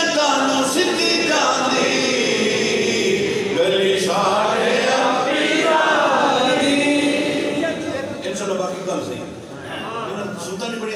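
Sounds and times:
man chanting into a microphone: 0:00.0 - 0:04.2.

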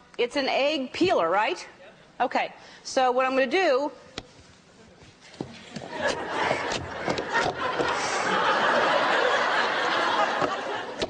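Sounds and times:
studio audience laughing: 0:05.6 - 0:11.0.

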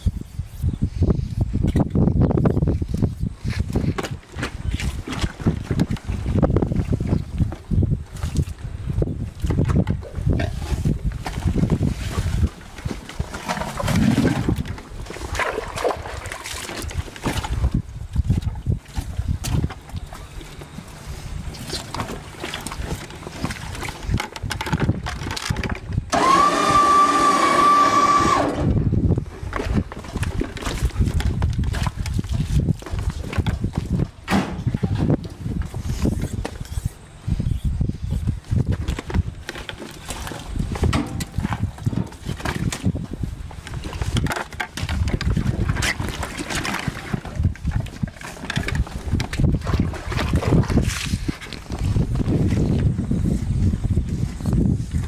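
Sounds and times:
wind on microphone: 0:00.0 - 0:55.0
motor whine winding down: 0:26.1 - 0:28.8.

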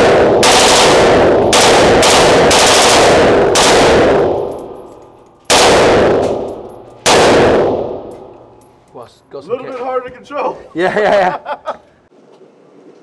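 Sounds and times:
rifle automatic bursts echoing: 0:00.0 - 0:04.8, 0:05.5 - 0:08.0.

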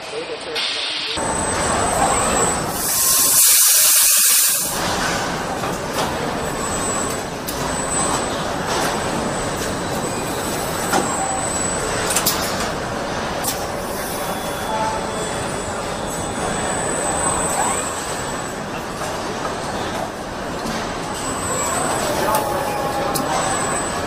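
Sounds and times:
factory machinery clatter: 0:00.0 - 0:24.0
loud hiss of air: 0:02.7 - 0:04.8.

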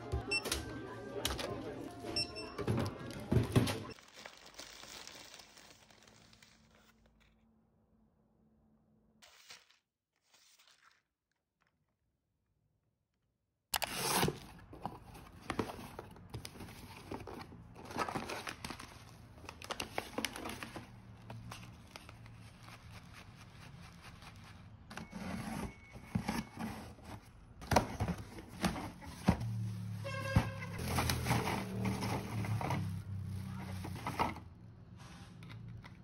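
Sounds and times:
plastic wrap crinkling: 0:03.9 - 0:07.4, 0:09.2 - 0:11.7, 0:17.1 - 0:24.9, 0:30.7 - 0:34.0.

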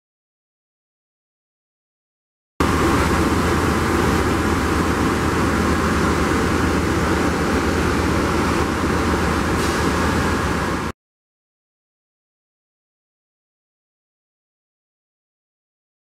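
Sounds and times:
diesel locomotive engine hum: 0:02.6 - 0:11.0.

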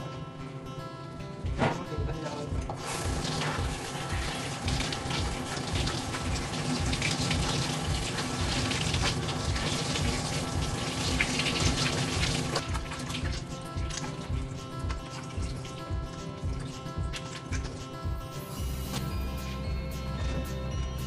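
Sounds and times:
shower sprayer spraying water: 0:02.8 - 0:19.9.

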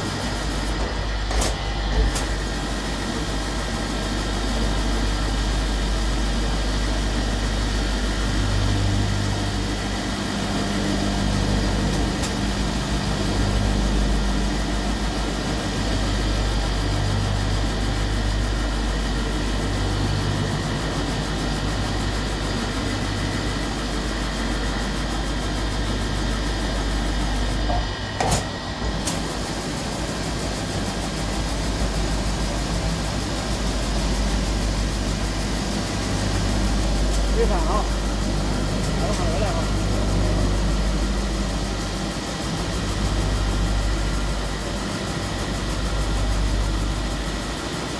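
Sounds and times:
polishing machine humming: 0:00.0 - 0:47.9.

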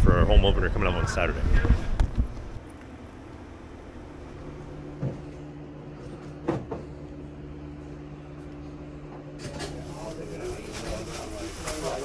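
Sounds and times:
low hum: 0:00.0 - 0:09.3.

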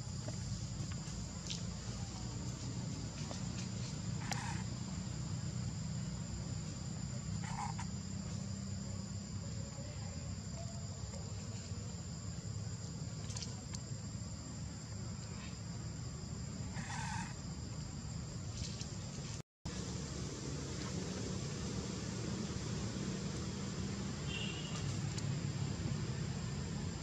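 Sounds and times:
high-pitched insect drone: 0:03.3 - 0:12.4.

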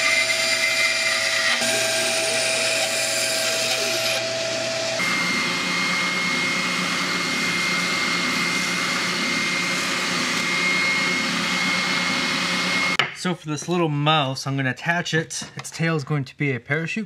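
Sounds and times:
bandsaw cutting wood: 0:00.0 - 0:13.0
spindle sander whining: 0:00.0 - 0:13.0.

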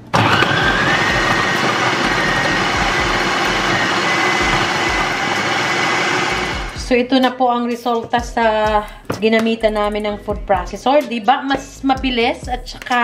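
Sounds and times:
food processor running: 0:00.0 - 0:06.9.

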